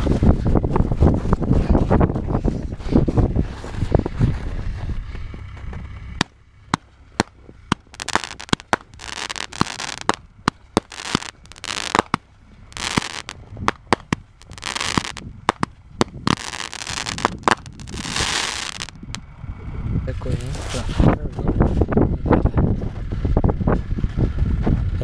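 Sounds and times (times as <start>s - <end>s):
fireworks bangs: 6.2s - 19.1s
fireworks hissing crackle: 7.2s - 19.1s.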